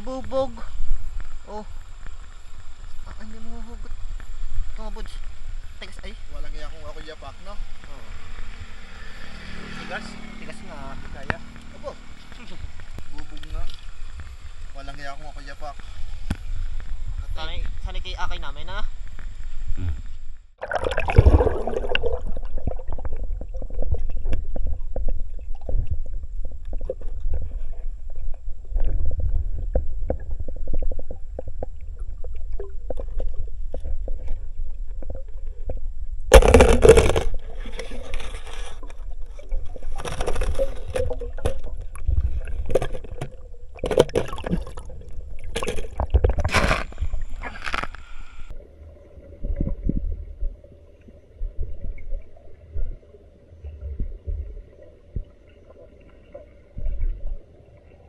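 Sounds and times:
water splashing: 0.0 - 18.2, 20.6 - 57.9
water gurgling underwater: 20.6 - 47.9, 48.5 - 58.0.

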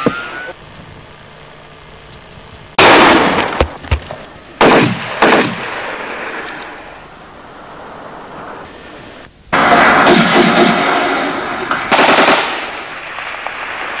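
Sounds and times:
loud gunshots echoing: 2.8 - 3.6, 4.6 - 6.4, 9.6 - 14.0.

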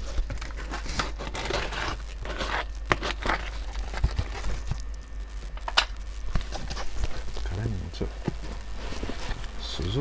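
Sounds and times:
plastic wrap crinkling and tearing: 0.0 - 10.0.

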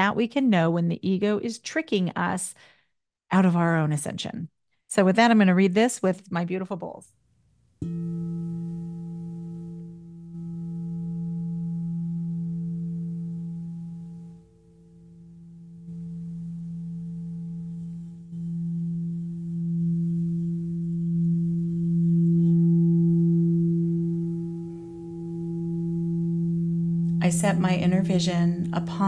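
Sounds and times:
singing bowls ringing: 7.8 - 29.0.

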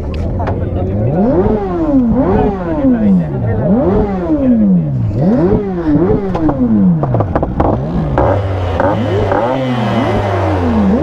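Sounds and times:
exhaust crackles: 0.0 - 11.0
motorcycle engine revving: 0.4 - 11.0.

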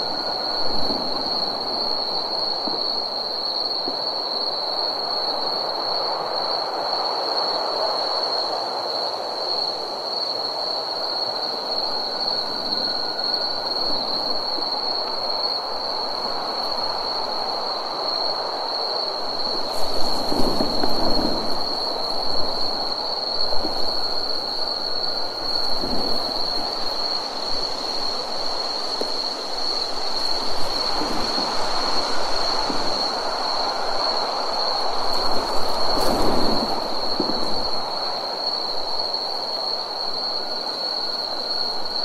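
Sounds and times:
night insects trilling: 0.0 - 42.0
rushing hiss: 19.0 - 42.0.

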